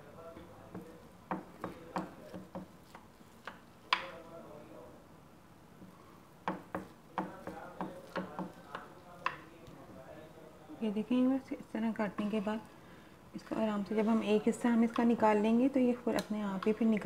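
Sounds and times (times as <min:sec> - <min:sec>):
knife tapping on glass dish: 0:00.7 - 0:02.7, 0:06.5 - 0:09.4.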